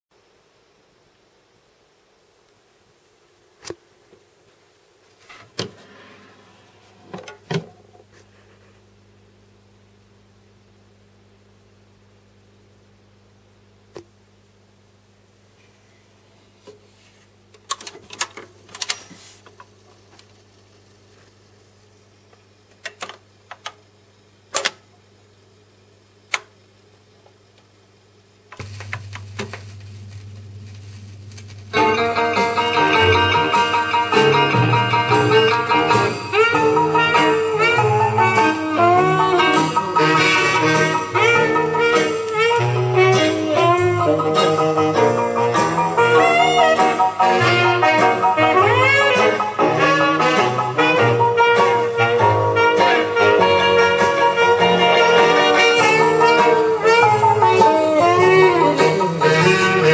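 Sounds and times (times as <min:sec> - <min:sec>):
steady low hum: 0:00.2 - 0:17.7, 0:18.3 - 0:46.3
record changer clunking: 0:05.4 - 0:05.9, 0:07.0 - 0:08.0, 0:24.5 - 0:24.9, 0:28.5 - 0:31.9
record changer mechanical clicks: 0:17.5 - 0:20.4, 0:22.7 - 0:23.8, 0:24.5 - 0:24.9, 0:26.3 - 0:26.6, 0:28.5 - 0:31.8
faint hiss: 0:25.4 - 0:59.9
low hum: 0:28.5 - 0:33.6.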